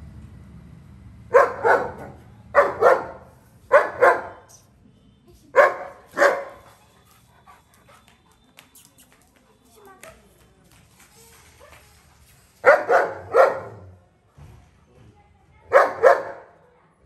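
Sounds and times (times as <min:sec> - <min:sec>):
dog barking: 0:01.3 - 0:04.5, 0:05.5 - 0:06.8, 0:12.6 - 0:14.0, 0:15.7 - 0:16.6.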